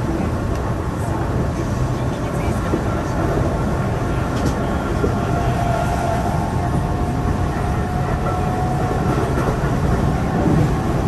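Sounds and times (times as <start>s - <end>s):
train wheels rumbling: 0.0s - 11.0s.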